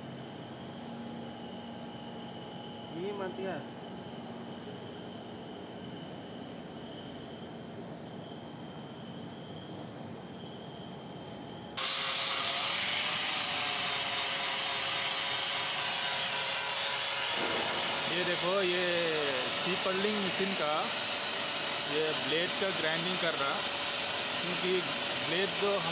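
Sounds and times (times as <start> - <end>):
angle grinder on steel: 11.8 - 25.9.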